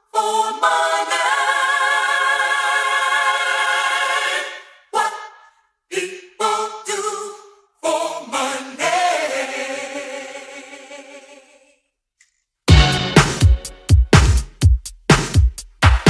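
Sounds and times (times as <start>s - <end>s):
unaccompanied choir singing: 0.0s - 5.3s, 5.9s - 11.8s.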